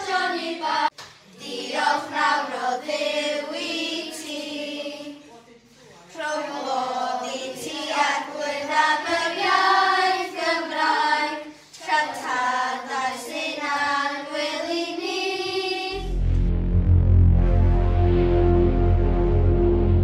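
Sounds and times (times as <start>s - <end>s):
children's choir singing: 0.0s - 5.2s, 6.2s - 16.2s.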